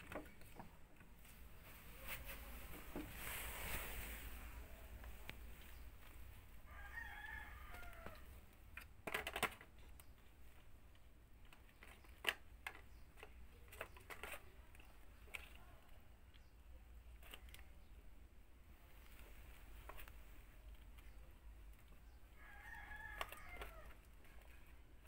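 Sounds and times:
faint rooster crow: 0:06.6 - 0:08.4, 0:22.3 - 0:24.1.

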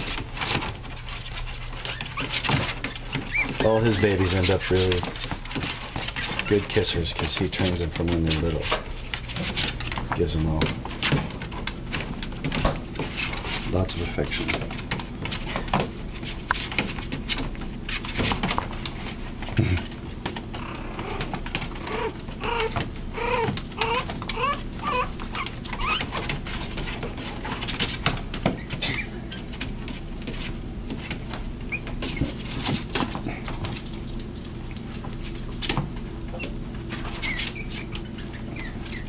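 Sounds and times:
puppies squeaking and whimpering: 0:00.0 - 0:10.0, 0:20.5 - 0:29.5, 0:31.6 - 0:39.0
paws scrambling on a blanket: 0:00.0 - 0:39.0.

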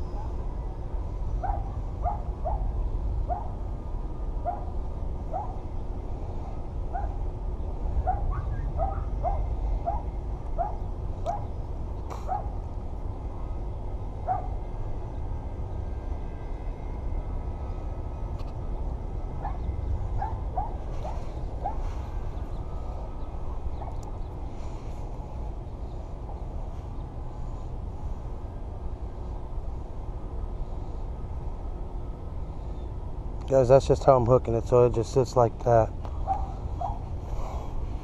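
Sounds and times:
wind rumble on microphone: 0:00.0 - 0:33.5.

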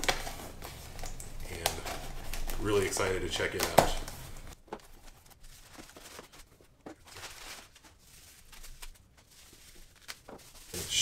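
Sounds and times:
packing material rustling: 0:00.0 - 0:11.0.

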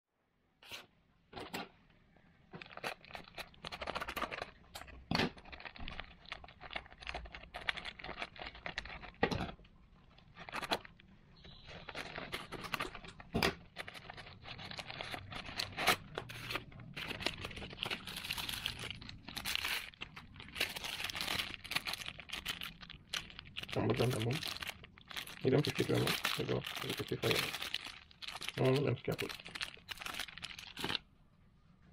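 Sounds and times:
paper and plastic wrapping tearing: 0:02.6 - 0:09.6, 0:10.2 - 0:31.0.

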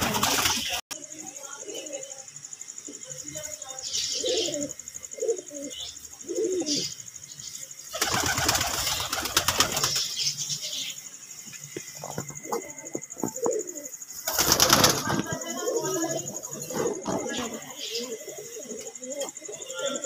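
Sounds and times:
pigeon wings flapping: 0:00.0 - 0:00.8, 0:08.0 - 0:10.1, 0:14.2 - 0:15.6
pigeons cooing: 0:00.0 - 0:00.8, 0:03.9 - 0:07.2, 0:07.8 - 0:10.4, 0:11.9 - 0:20.0.

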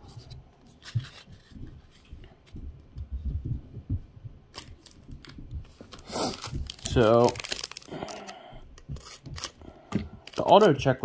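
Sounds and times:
foil pack crinkle: 0:04.6 - 0:11.0.

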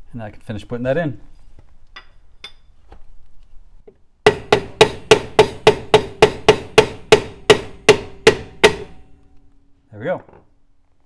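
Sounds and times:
hammer striking metal: 0:04.2 - 0:09.2.

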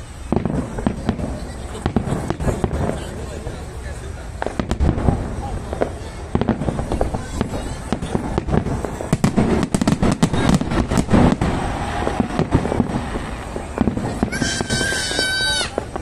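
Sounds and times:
fireworks bangs and crackles: 0:00.0 - 0:16.0
firework high whistle: 0:05.4 - 0:16.0.

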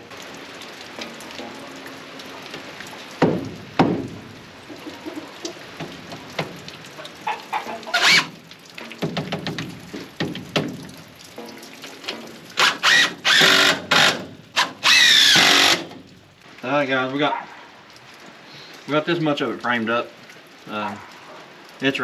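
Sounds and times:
wood knocks: 0:02.6 - 0:04.2, 0:08.8 - 0:12.4
cordless drill driving screws: 0:12.6 - 0:15.9.

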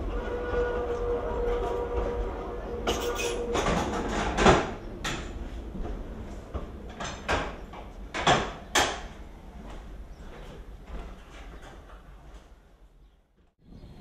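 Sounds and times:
steady tone from train: 0:00.0 - 0:04.4
levers clunking and clacking: 0:02.9 - 0:09.2.

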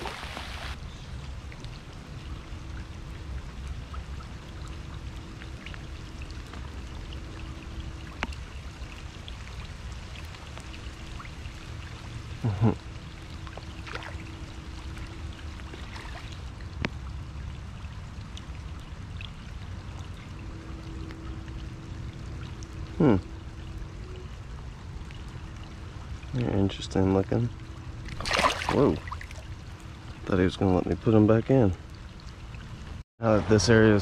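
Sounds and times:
heavy rain on water: 0:00.0 - 0:26.9.

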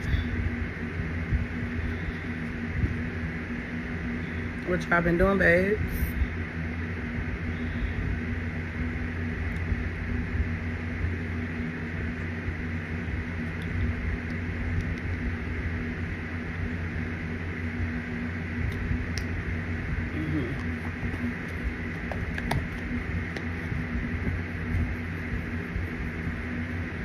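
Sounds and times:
fan-like hiss: 0:00.0 - 0:27.0
low mechanical hum: 0:00.0 - 0:27.0.

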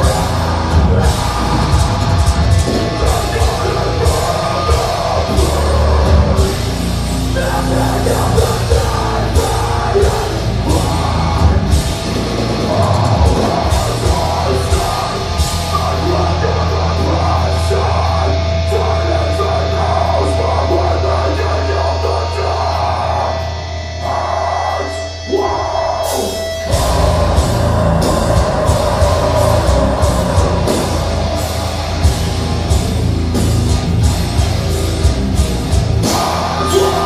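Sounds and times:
pounding drums: 0:00.0 - 0:16.2, 0:26.7 - 0:37.0
distorted guitars and bass: 0:00.0 - 0:37.0.

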